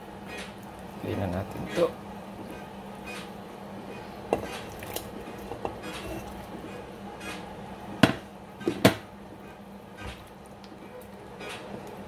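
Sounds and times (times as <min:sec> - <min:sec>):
steady low hum: 0:00.0 - 0:12.0
food clinking against a pot: 0:04.3 - 0:07.4.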